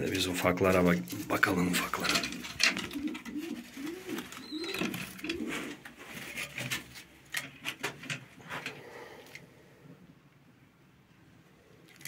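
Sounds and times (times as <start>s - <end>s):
pigeons cooing: 1.0s - 7.0s.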